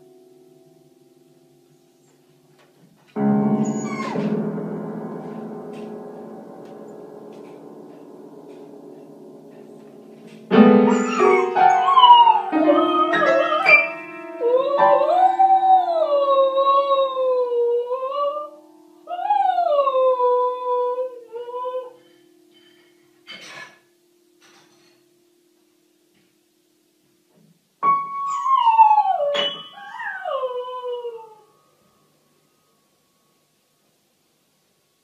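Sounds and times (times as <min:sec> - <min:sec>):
piano note clusters: 0:03.2 - 0:17.3
dog howling: 0:03.6 - 0:04.3, 0:10.9 - 0:18.5, 0:28.3 - 0:31.5.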